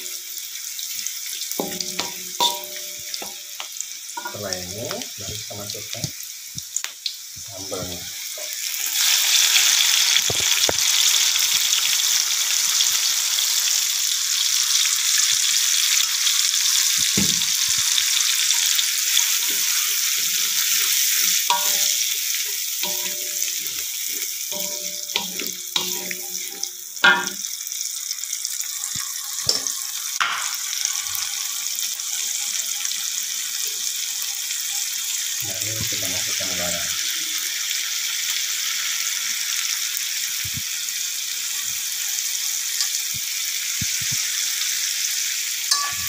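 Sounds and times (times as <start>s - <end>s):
paste sizzling in hot oil: 0.0s - 46.0s
spatula stirring in wok: 19.3s - 22.2s.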